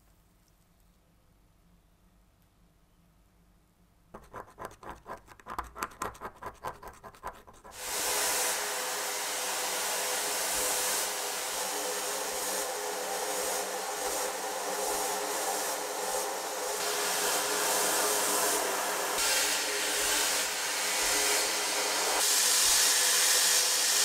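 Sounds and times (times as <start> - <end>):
scratching strokes: 4.2 - 7.9
sandblaster hissing: 7.8 - 24.0.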